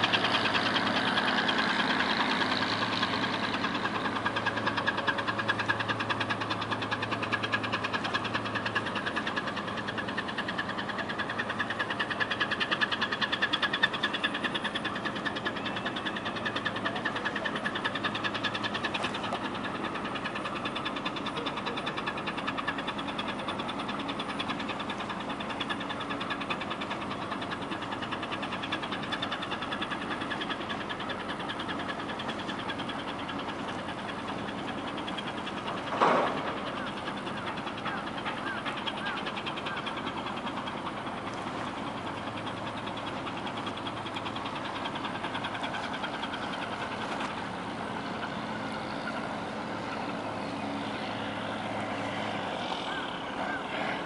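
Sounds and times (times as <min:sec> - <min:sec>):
engine running: 0:00.0 - 0:54.0.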